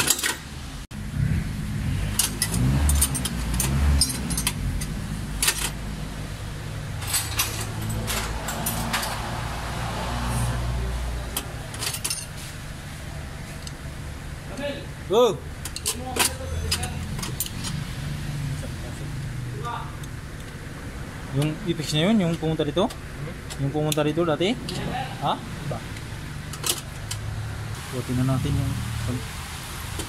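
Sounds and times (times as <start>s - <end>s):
steady low drone: 0.9s - 11.2s.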